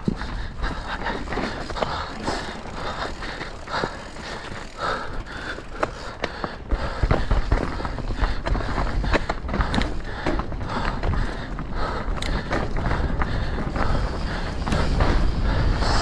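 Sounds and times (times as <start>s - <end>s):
bike knocks and rattles: 0.0s - 15.8s
mountain bike on rough trail: 0.0s - 16.0s.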